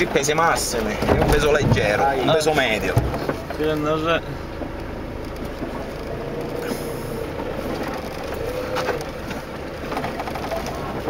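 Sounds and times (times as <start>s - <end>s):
car engine and road rumble: 0.0s - 11.0s
car body knocks and rattles: 0.8s - 4.0s.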